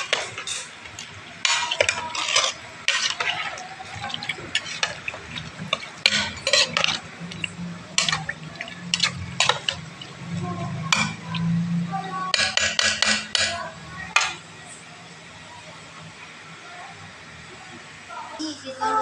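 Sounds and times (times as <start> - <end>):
metal spoon scraping and clinking pot: 0.0 - 11.6
low steady hum: 0.0 - 12.3
liquid sloshing: 0.0 - 13.7.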